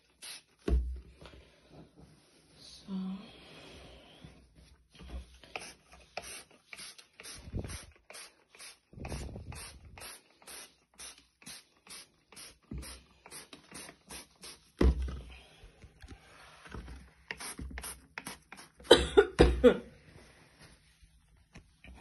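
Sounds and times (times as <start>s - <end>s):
spray bottle spritzing: 0.0s - 0.6s, 5.6s - 14.7s, 17.3s - 18.9s.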